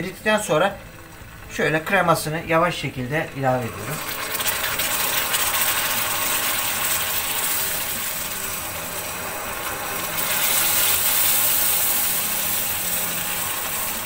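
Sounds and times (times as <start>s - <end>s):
caramel boiling and crackling: 0.0s - 14.0s.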